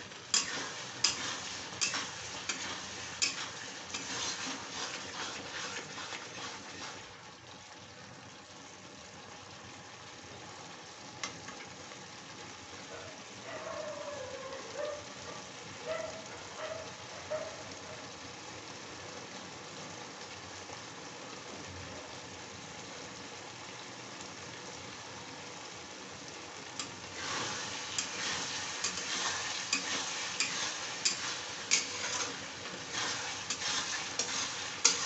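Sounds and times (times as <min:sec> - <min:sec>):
pan simmering with hiss: 0:00.0 - 0:35.0
metal spatula scraping a pan: 0:00.3 - 0:07.1, 0:26.8 - 0:35.0.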